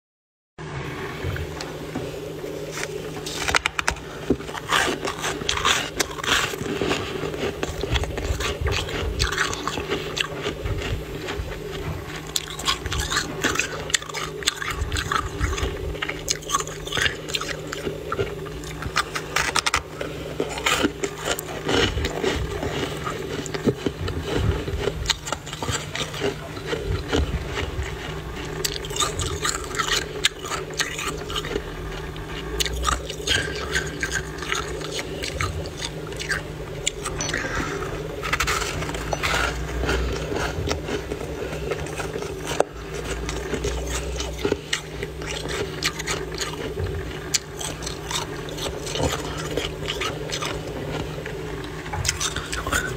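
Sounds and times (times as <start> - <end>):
frost squeaky crunching: 1.6 - 52.9.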